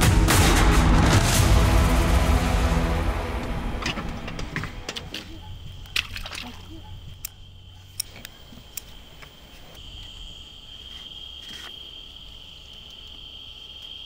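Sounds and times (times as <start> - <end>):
low rumble: 0.0 - 4.9
insects trilling: 4.3 - 14.0.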